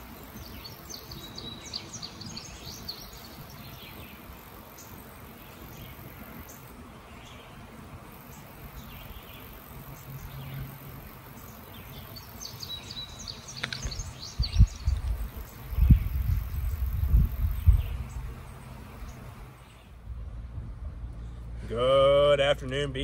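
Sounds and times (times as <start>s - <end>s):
bee swarm humming: 0.0s - 23.0s
birds chirping: 0.0s - 23.0s
strong low rumbles: 20.0s - 21.6s.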